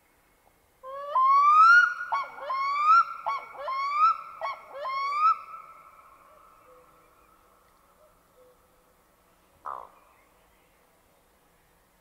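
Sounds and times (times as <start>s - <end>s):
loon wailing call: 0.8s - 5.8s.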